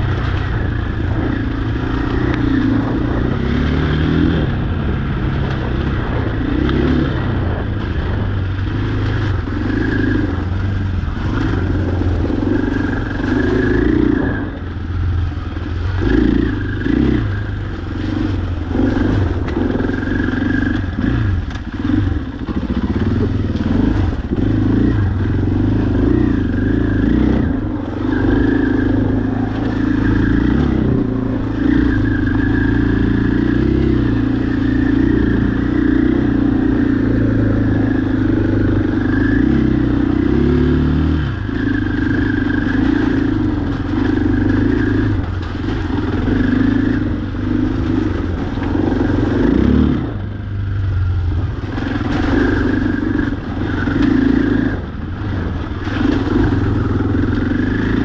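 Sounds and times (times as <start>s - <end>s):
off-road vehicle engine running: 0.0s - 58.0s.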